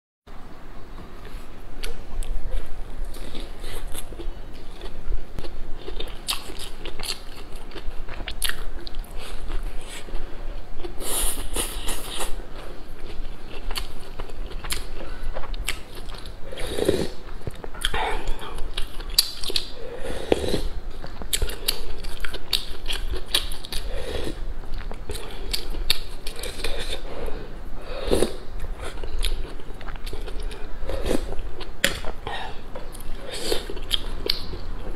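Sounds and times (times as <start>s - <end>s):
chewing with wet mouth clicks: 3.1s - 10.0s, 13.0s - 16.3s, 17.2s - 19.8s, 20.9s - 23.8s, 24.7s - 27.0s, 28.6s - 34.9s.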